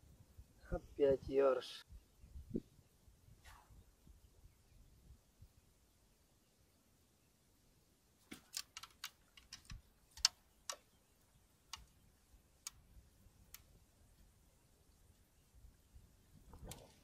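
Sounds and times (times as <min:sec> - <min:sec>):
fishing tackle clicks and taps: 0:08.4 - 0:10.9.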